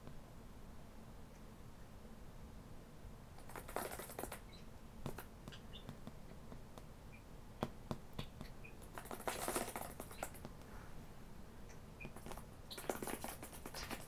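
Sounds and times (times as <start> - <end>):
budgies scratching on hard surfaces: 3.4 - 5.9, 8.2 - 10.5, 12.0 - 14.0
faint bird chirps: 3.5 - 4.8, 5.5 - 6.0, 8.2 - 10.4, 11.7 - 14.0
sharp taps: 5.0 - 6.9.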